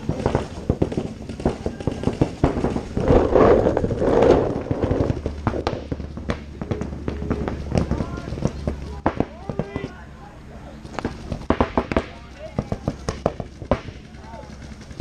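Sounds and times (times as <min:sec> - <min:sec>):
rush of noise: 0:02.5 - 0:07.4.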